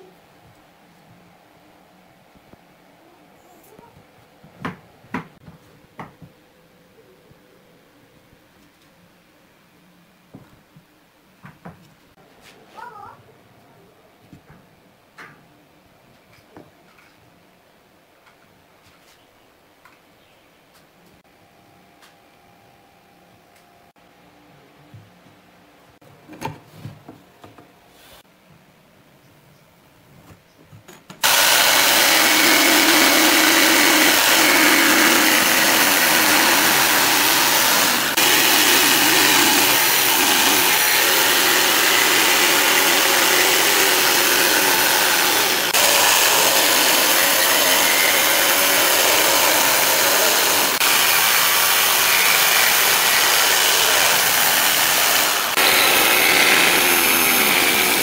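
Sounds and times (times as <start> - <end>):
jigsaw cutting wood: 31.2 - 58.0.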